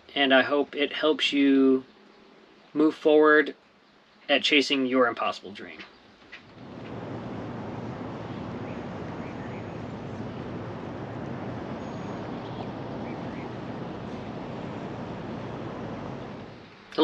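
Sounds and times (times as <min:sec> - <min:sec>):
outdoor ambient rush: 0:05.5 - 0:17.0
faint high chirps: 0:07.4 - 0:16.5.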